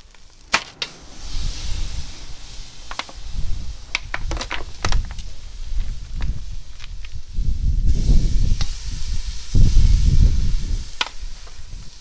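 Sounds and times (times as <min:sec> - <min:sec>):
fat popping: 0:00.0 - 0:01.8, 0:02.8 - 0:07.2
meat sizzling on grill: 0:00.0 - 0:12.0
low rumble: 0:00.1 - 0:08.0.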